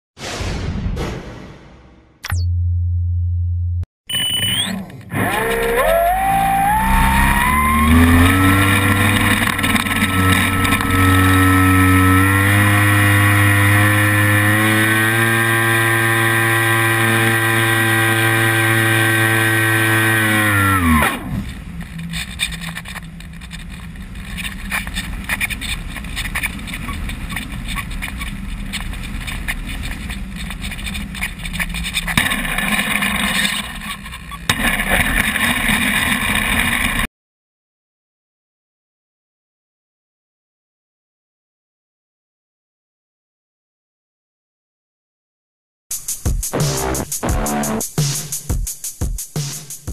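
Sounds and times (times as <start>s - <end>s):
electric motor whining: 4.7s - 25.2s.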